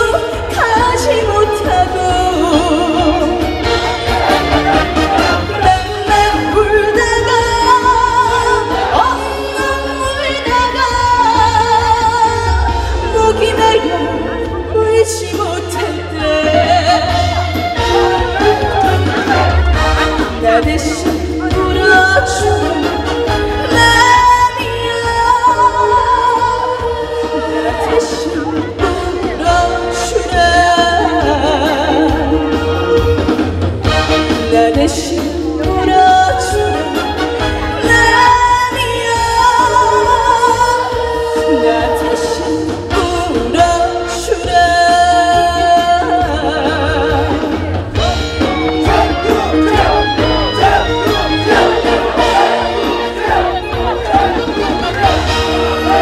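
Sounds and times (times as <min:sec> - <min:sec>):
woman singing with vibrato: 0:00.0 - 0:03.8, 0:05.4 - 0:33.3, 0:34.4 - 0:37.2, 0:37.8 - 0:47.8
instrumental accompaniment: 0:00.0 - 0:56.0
strong bass line: 0:47.7 - 0:56.0.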